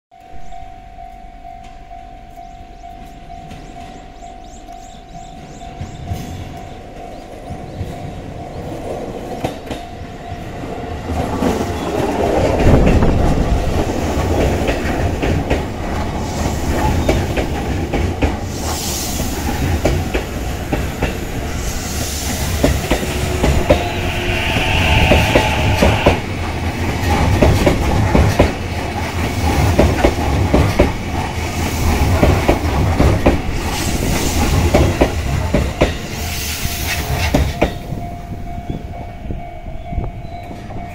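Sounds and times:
level crossing warning bell: 0:00.1 - 0:09.2, 0:37.8 - 0:40.9
train wheels clattering on rail joints: 0:11.0 - 0:38.1.

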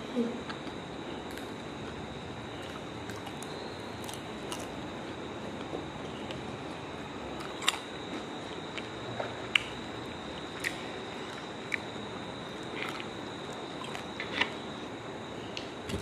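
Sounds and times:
faint high whine: 0:00.0 - 0:16.0
soft chewing: 0:07.3 - 0:14.6.

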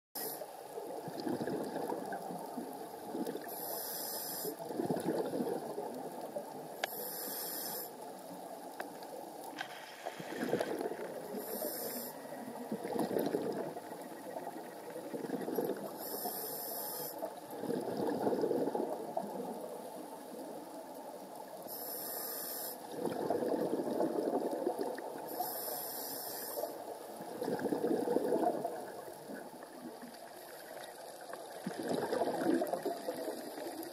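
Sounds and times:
exhaled bubbles rushing: 0:00.9 - 0:03.5, 0:04.7 - 0:06.3, 0:12.5 - 0:16.0, 0:17.5 - 0:19.7, 0:22.9 - 0:25.3, 0:27.2 - 0:31.0, 0:31.6 - 0:33.9
regulator hissing inhale: 0:03.4 - 0:04.7, 0:06.8 - 0:08.1, 0:09.6 - 0:12.4, 0:16.0 - 0:17.3, 0:21.6 - 0:22.9, 0:25.3 - 0:26.9.

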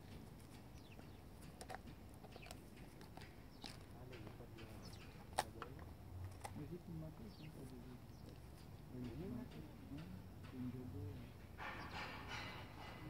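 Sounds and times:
birds chirping faintly: 0:00.0 - 0:13.0
dog gnawing a bone: 0:04.8 - 0:06.8.

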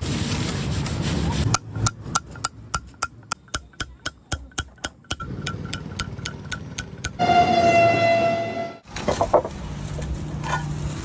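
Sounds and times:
hammer tapping chisel on stone: 0:01.6 - 0:07.2.

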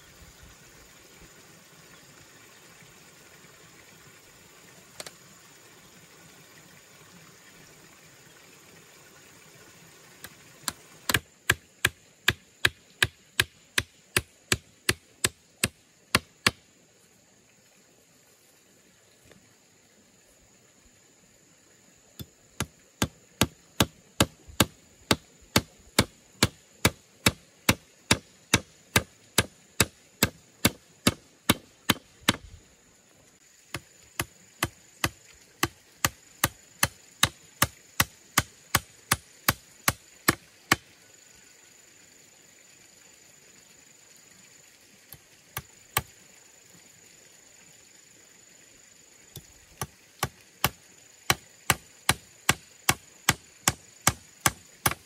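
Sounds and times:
hammer driving nails into bamboo: 0:11.1 - 0:16.6, 0:22.6 - 0:32.5.

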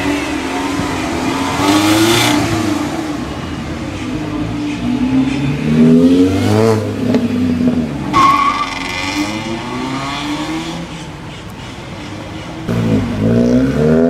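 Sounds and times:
car engine revving: 0:00.0 - 0:14.0
brief high squeal: 0:08.2 - 0:08.9.

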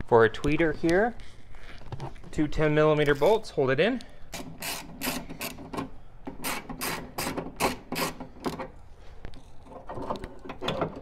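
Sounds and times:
socket ratchet rasping: 0:04.3 - 0:08.7.

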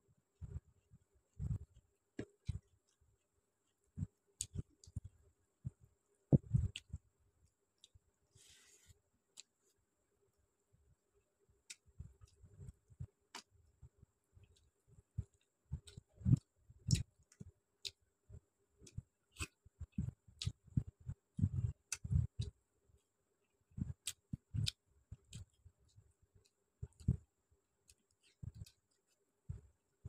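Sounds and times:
chewing: 0:15.3 - 0:18.0.

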